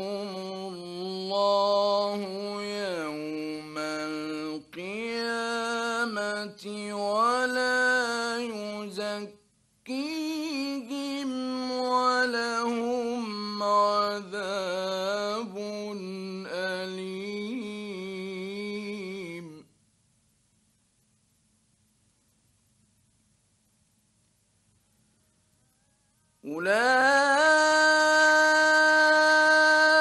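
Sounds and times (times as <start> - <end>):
man chanting melodically: 0.0 - 19.7, 26.4 - 30.0.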